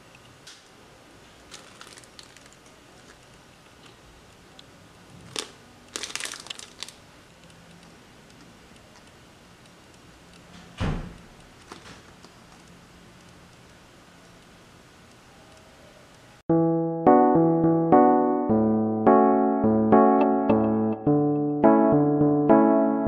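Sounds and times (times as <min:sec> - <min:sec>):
plastic and foil sachets crinkling: 0:01.4 - 0:03.3, 0:05.2 - 0:07.0.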